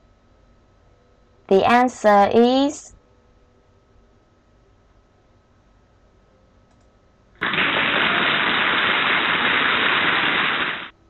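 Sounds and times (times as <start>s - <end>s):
static-like hiss: 7.3s - 11.0s.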